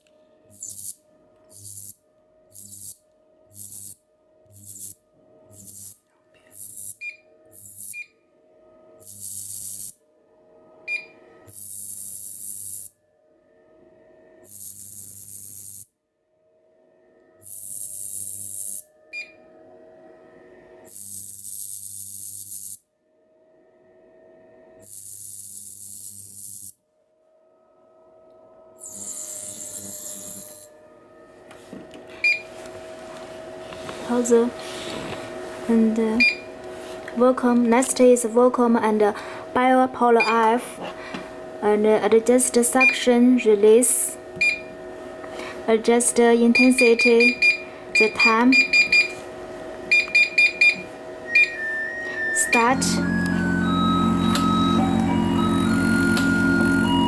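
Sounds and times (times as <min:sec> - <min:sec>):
electrical hum: 0:00.0 - 0:15.8, 0:27.4 - 0:57.0
ultrasonic handpiece hissing: 0:17.5 - 0:18.8
short electronic beep: 0:49.9 - 0:57.0.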